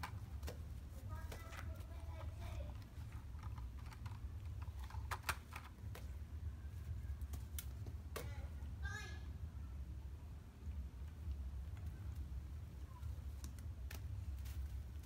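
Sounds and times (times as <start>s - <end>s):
light clicks and knocks of plastic toy: 0.0s - 6.1s
steady low hum: 0.0s - 15.0s.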